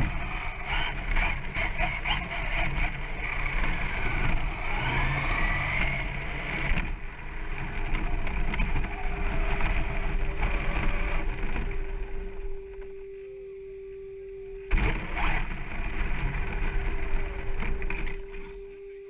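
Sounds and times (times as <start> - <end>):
rc truck rattling over rough ground: 0.0 - 12.5, 14.7 - 18.7
faint steady hum: 0.0 - 19.0
wind: 0.0 - 19.0.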